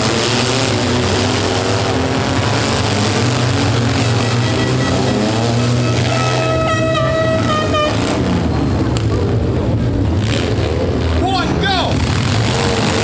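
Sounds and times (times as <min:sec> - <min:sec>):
engines revving: 0:00.0 - 0:13.0
horn blast: 0:03.4 - 0:08.5.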